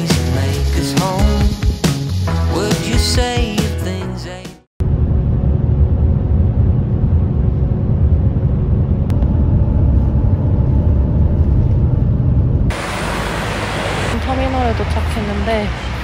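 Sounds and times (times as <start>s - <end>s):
car interior road noise: 6.5s - 16.0s.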